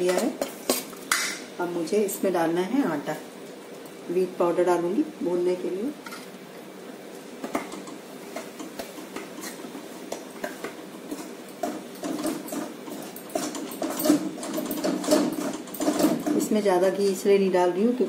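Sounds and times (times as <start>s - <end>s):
metal spatula scraping a pan: 8.4s - 9.7s.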